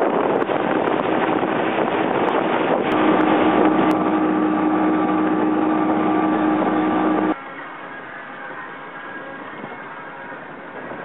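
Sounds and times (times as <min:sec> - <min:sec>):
rushing water: 0:00.0 - 0:07.4
wind on microphone: 0:00.0 - 0:07.4
outboard motors running: 0:02.8 - 0:07.4.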